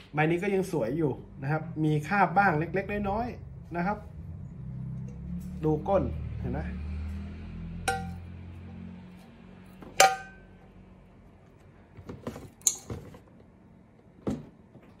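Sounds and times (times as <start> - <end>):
metal kettle clinking: 7.9 - 8.2, 9.9 - 10.5.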